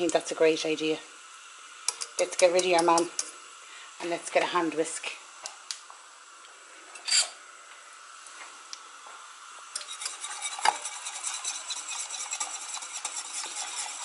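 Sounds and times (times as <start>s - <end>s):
whisk clicking against pan: 9.8s - 14.0s.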